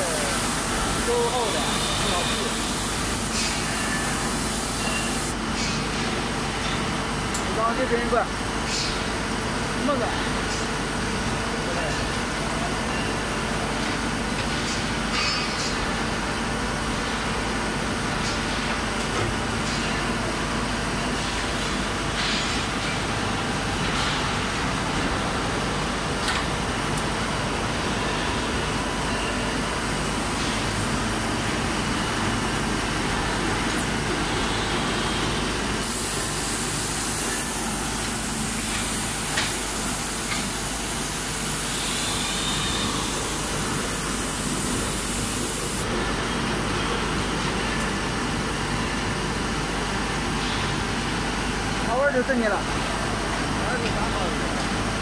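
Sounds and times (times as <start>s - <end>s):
industrial machinery din: 0.0s - 5.4s
strong hiss: 0.0s - 5.4s, 35.8s - 45.8s.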